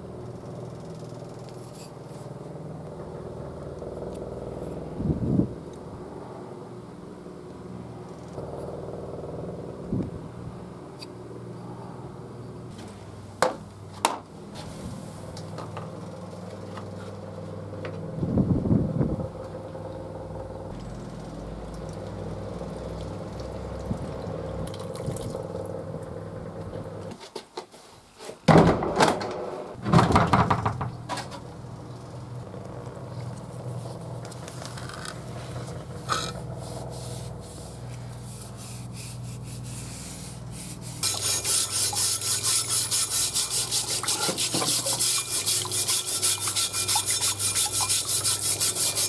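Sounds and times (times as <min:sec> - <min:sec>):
belt grinder sanding wood: 0:35.6 - 0:49.0.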